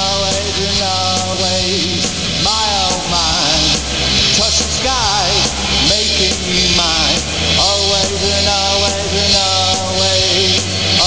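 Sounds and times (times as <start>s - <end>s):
loud rock band music: 0.0s - 11.0s.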